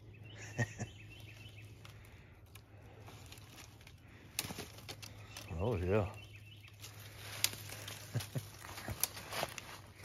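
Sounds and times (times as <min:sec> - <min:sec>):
dry leaves rustling and crackling: 0:01.2 - 0:10.0
twigs snapping: 0:01.2 - 0:10.0.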